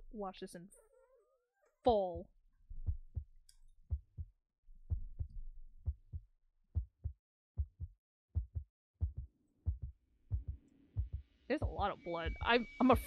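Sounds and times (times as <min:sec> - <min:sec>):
heartbeat thumps: 0:02.8 - 0:03.3, 0:03.9 - 0:04.3, 0:04.9 - 0:06.2, 0:06.8 - 0:13.0.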